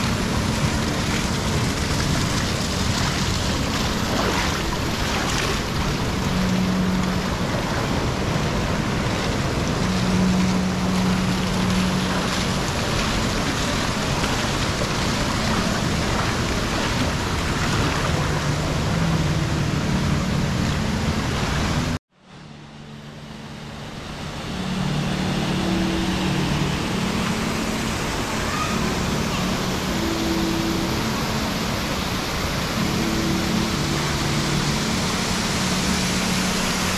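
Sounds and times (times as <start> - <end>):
bubbling spa jets: 0.0 - 22.0, 23.8 - 36.9
waterfall rushing: 0.0 - 22.0, 22.7 - 36.9.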